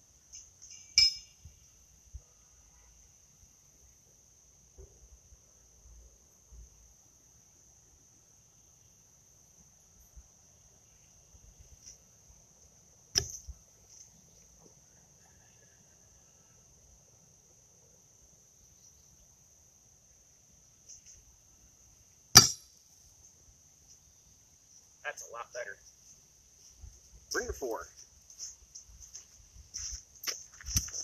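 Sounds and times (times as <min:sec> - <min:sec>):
horseshoe landing in sand: 0:13.2 - 0:13.6, 0:22.4 - 0:22.7.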